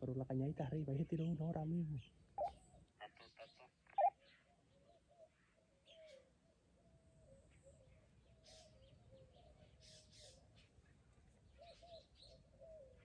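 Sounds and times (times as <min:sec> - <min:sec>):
bird wavering call: 0:02.4 - 0:02.7.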